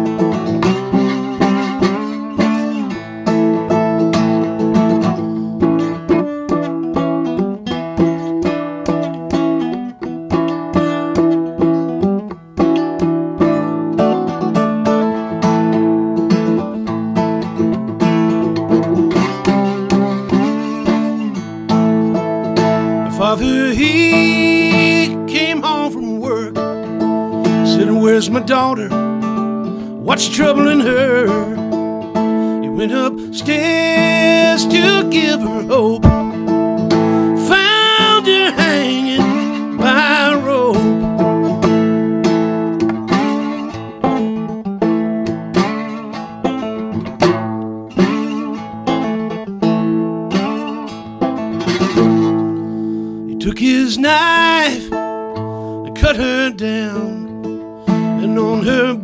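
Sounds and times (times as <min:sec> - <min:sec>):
acoustic guitar playing: 0:00.0 - 0:59.0
man singing: 0:23.0 - 0:26.8, 0:27.5 - 0:29.2, 0:29.9 - 0:31.8, 0:32.5 - 0:36.4, 0:37.1 - 0:41.2, 0:53.3 - 0:55.0, 0:55.8 - 0:59.0.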